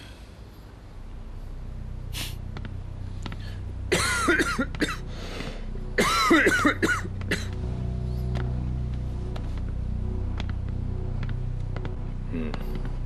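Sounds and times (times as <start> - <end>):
man coughing: 3.9 - 5.0, 6.0 - 7.6.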